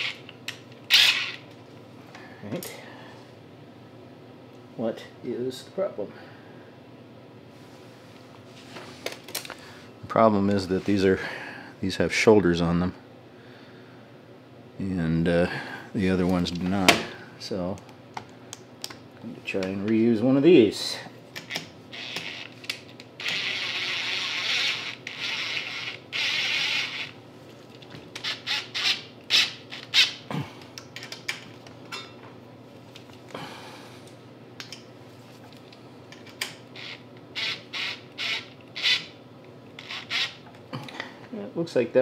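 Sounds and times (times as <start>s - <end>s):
cordless driver driving bolts: 21.4s - 27.2s.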